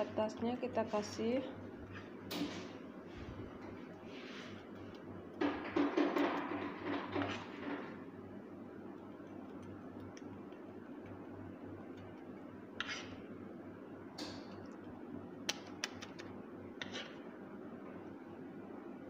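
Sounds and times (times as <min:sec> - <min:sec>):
steady low hum: 0:00.0 - 0:19.0
spoon scraping metal tray: 0:05.8 - 0:08.0, 0:12.8 - 0:13.2, 0:16.8 - 0:17.2.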